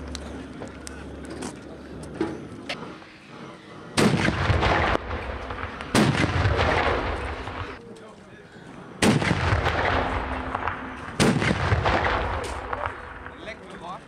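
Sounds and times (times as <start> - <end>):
rumbling echo: 2.8 - 7.8, 8.9 - 14.0
cannon bangs: 4.0 - 7.8, 9.0 - 13.6.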